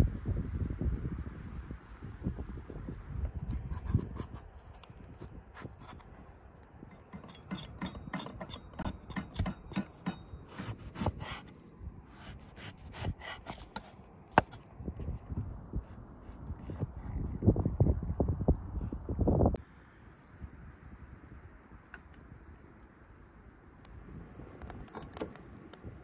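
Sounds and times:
knife peeling vegetable: 7.2 - 11.5, 12.1 - 14.6.

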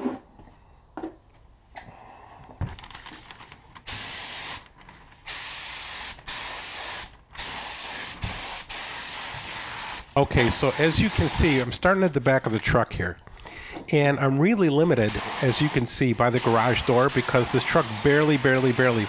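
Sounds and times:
paint spray gun hissing: 3.9 - 11.7, 15.0 - 19.0.

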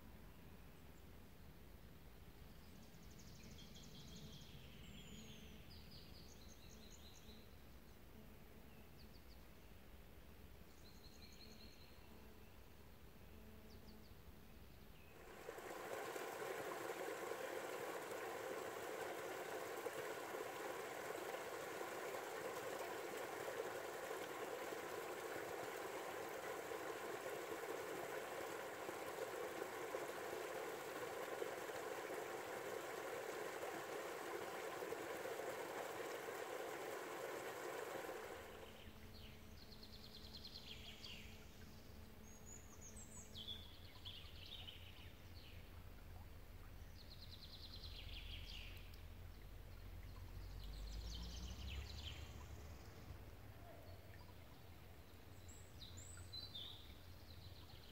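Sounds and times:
countryside ambience: 6.8 - 57.9
small birds chirping: 15.0 - 41.2
flowing river water: 15.1 - 39.2, 47.6 - 57.9.

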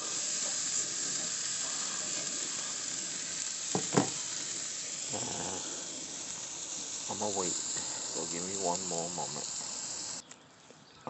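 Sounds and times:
meat sizzling on a grill: 0.0 - 10.2.

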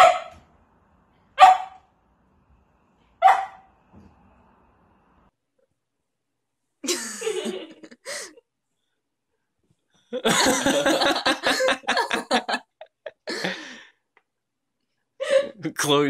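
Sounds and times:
person laughing: 6.8 - 8.4, 10.2 - 13.8.

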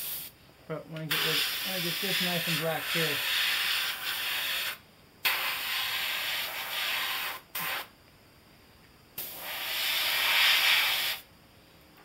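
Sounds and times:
airbrush spraying hiss: 0.0 - 0.4, 1.1 - 7.9, 9.2 - 11.3.

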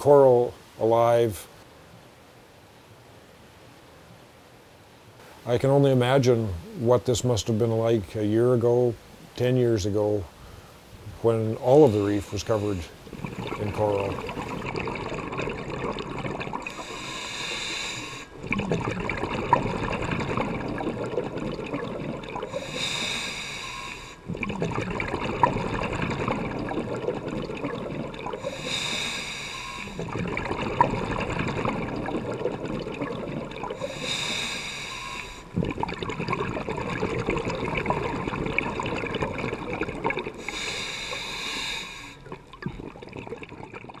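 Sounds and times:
exhaled bubbles gurgling: 11.0 - 44.0
regulator hissing inhalations: 11.6 - 14.3, 16.6 - 18.4, 22.5 - 24.3, 28.4 - 30.1, 33.7 - 35.6, 40.4 - 42.4.

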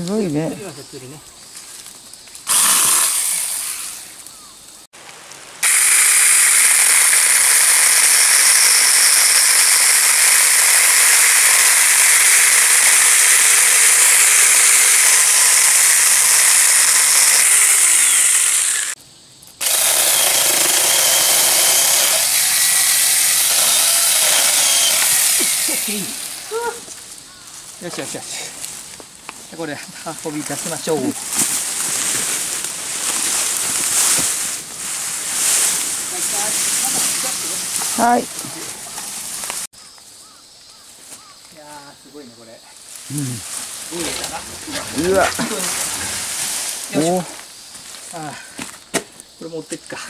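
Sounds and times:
electric chainsaw cutting wood: 2.4 - 4.2, 5.6 - 19.0, 19.6 - 26.6, 43.9 - 46.3.

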